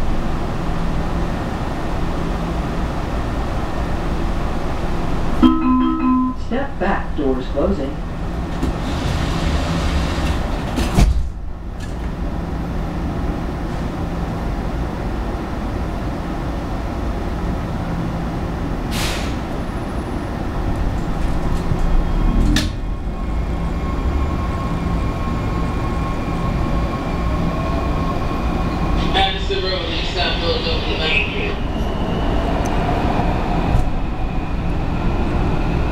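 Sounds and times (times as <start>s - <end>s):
subway car rumbling hum: 0.0s - 35.9s
subway car whine moving off: 0.0s - 35.9s
subway doors sliding shut: 7.4s - 35.9s
hiss of air: 18.9s - 19.5s.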